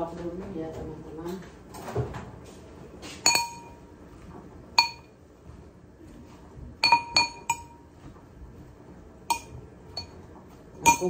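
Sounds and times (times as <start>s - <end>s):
metal spoon clinking on dish: 3.2s - 3.8s, 4.8s - 5.1s, 6.8s - 7.8s, 9.3s - 10.2s, 10.8s - 11.0s.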